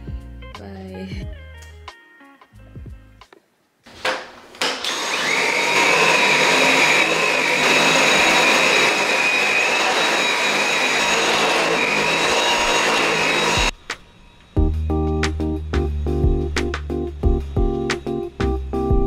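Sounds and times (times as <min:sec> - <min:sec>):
stick vacuum cleaner whine: 0:03.9 - 0:18.7.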